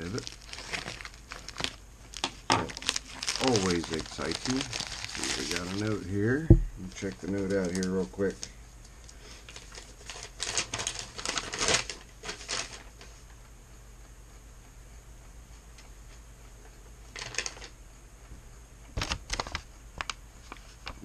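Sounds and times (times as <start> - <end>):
paper rustling and crackling: 0.0 - 8.5, 9.3 - 13.2, 17.1 - 17.7, 19.0 - 21.0.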